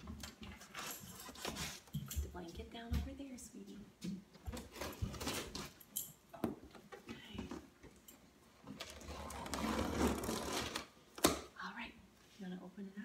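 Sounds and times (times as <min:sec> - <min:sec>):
cardboard scraping: 0:08.8 - 0:11.0.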